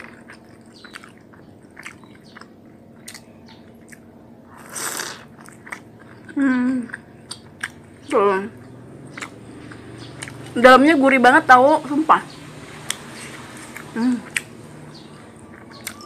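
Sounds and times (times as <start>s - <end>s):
wet chewing clicks: 0.0s - 10.6s, 12.3s - 16.0s
loud bite: 3.1s - 5.9s
person humming: 13.9s - 14.4s.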